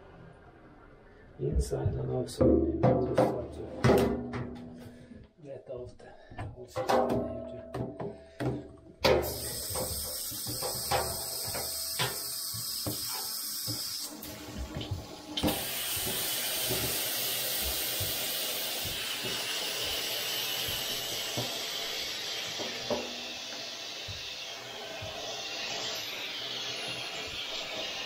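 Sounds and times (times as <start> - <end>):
knocks: 1.8 - 5.0
shower water running into bathtub: 9.0 - 28.0.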